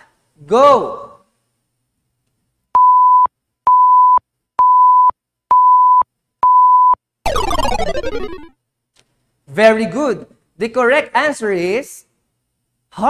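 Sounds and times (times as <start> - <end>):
countdown timer beeping: 7.3 - 8.5
tones sliding down in pitch: 7.3 - 8.5.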